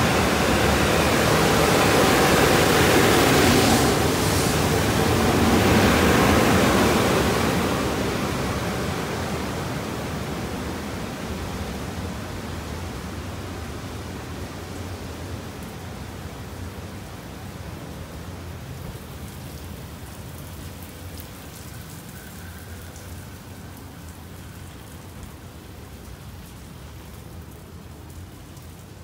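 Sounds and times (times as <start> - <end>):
water spraying: 0.0 - 9.5.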